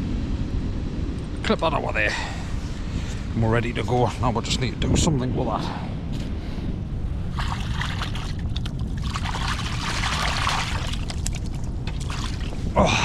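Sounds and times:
wind rumble on microphone: 0:00.0 - 0:13.0
hands splashing in water: 0:07.3 - 0:12.5.

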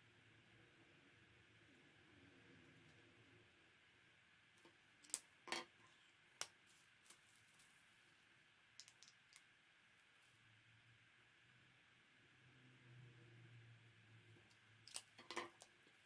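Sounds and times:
marker pens clicking and tapping: 0:08.8 - 0:09.4, 0:14.8 - 0:15.8.

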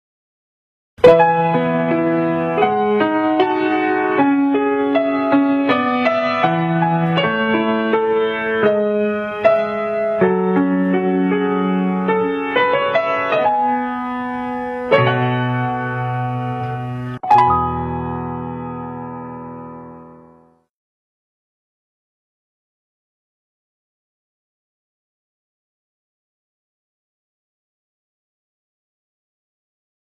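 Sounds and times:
solo piano melody: 0:01.0 - 0:20.7.

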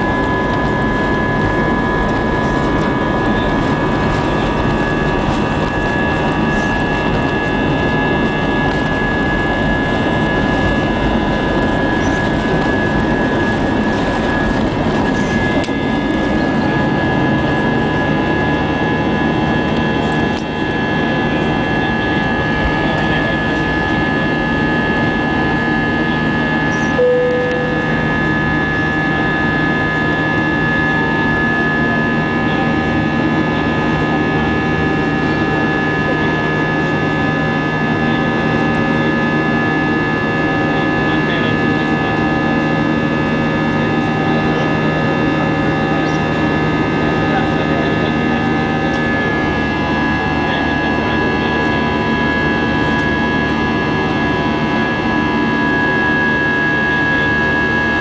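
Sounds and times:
aircraft cabin engine and airflow noise: 0:00.0 - 0:58.0
short tone: 0:26.7 - 0:28.9.

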